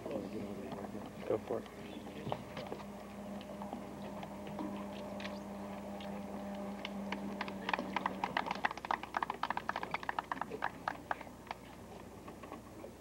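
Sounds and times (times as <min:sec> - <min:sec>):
low steady hum: 0:00.0 - 0:13.0
group hand clapping: 0:06.5 - 0:11.6.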